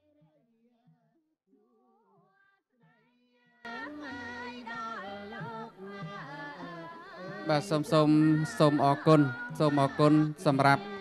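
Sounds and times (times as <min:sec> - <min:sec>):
person singing slowly: 0:05.1 - 0:11.0.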